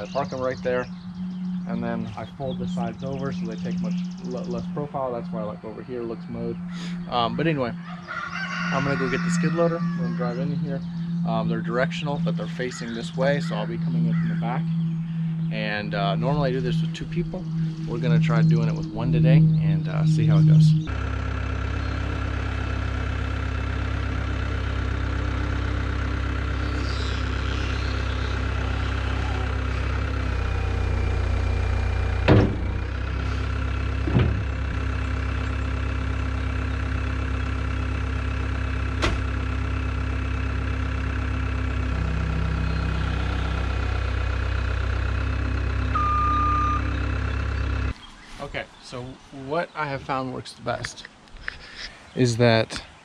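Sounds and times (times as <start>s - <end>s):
diesel engine running: 0.0s - 52.6s
knocks: 32.2s - 32.9s, 34.0s - 34.7s
short beep: 45.9s - 46.9s.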